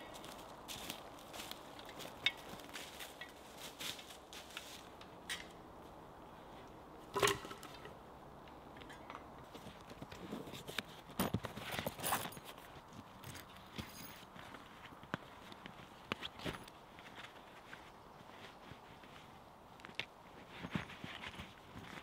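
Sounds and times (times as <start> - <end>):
dry leaves and twigs crackling: 0.0 - 6.0.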